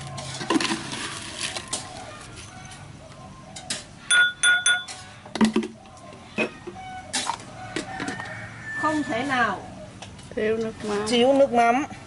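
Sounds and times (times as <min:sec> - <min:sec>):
ringing kitchenware clinks: 0:04.1 - 0:05.1.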